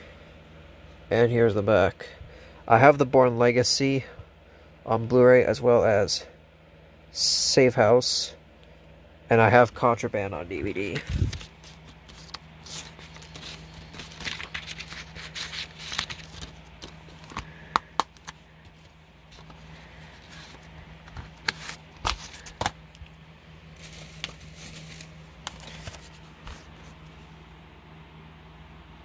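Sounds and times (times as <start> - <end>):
plastic cases rustling and scraping: 10.8 - 23.1, 23.7 - 27.2.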